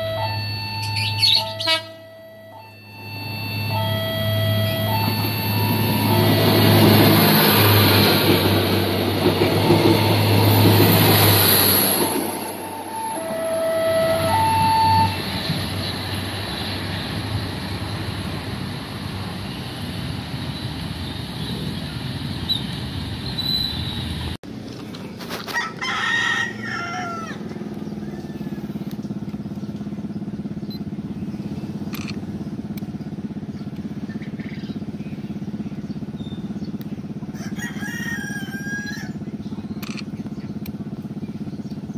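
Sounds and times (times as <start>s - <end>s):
diesel train passing: 0.0s - 41.9s
rooster crowing: 25.4s - 29.0s, 37.3s - 39.2s.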